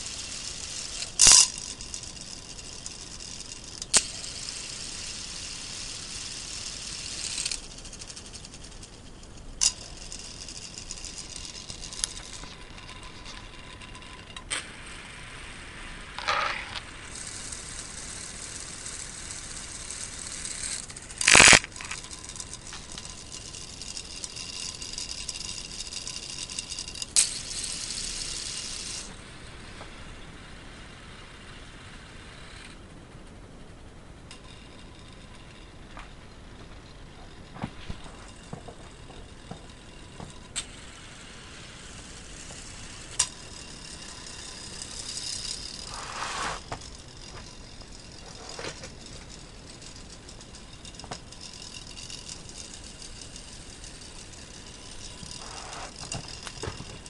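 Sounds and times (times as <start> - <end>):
motor whir and rattling gears: 0.0 - 15.2, 15.8 - 57.0
sharp clicks and knocks: 42.4 - 57.0.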